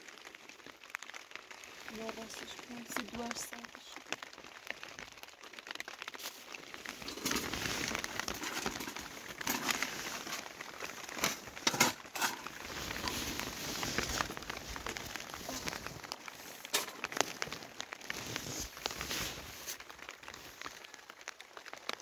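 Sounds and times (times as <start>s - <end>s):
rustling and crinkling: 0.0s - 22.0s.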